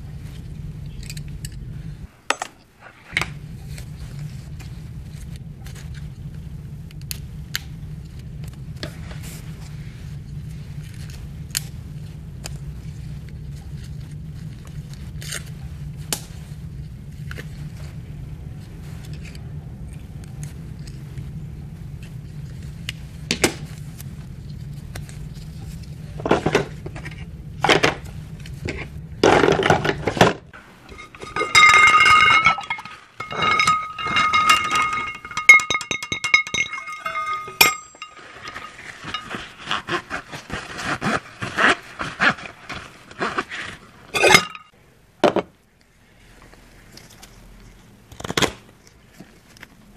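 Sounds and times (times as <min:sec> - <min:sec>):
low steady hum: 0:00.0 - 0:49.9
bottles and jars rattling: 0:29.2 - 0:39.6
metal and glass clinking: 0:30.9 - 0:39.6, 0:44.2 - 0:44.7.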